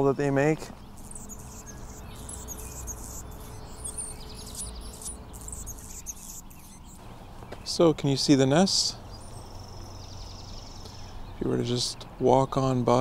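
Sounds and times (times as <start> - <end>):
hummingbird squeaky chirps: 0.8 - 7.0, 9.1 - 10.8
hummingbird buzzy trill: 0.9 - 7.0.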